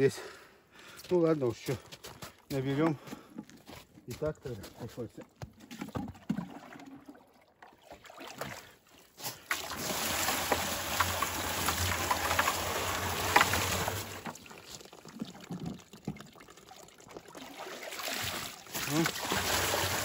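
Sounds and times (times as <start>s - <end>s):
water pouring from bucket: 5.6s - 20.0s.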